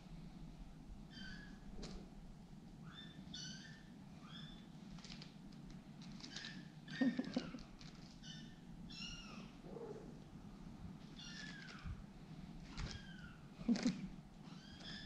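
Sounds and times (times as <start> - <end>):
kittens mewing: 6.4 - 10.2, 12.7 - 15.0.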